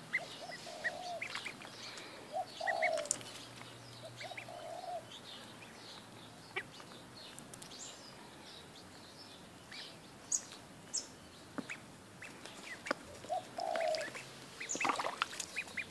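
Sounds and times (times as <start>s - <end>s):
ducklings dabbling with splashes: 0.0s - 3.4s, 11.6s - 15.9s
ducklings peeping: 0.0s - 7.4s, 8.6s - 15.9s.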